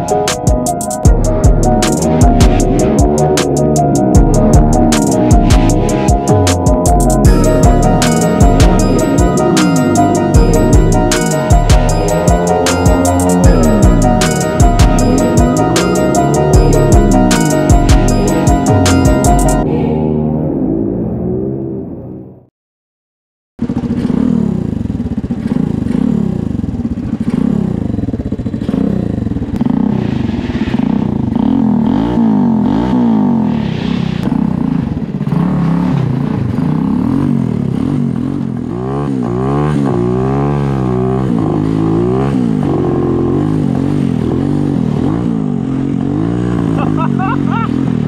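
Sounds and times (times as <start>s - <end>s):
small engine revving: 23.6s - 48.0s.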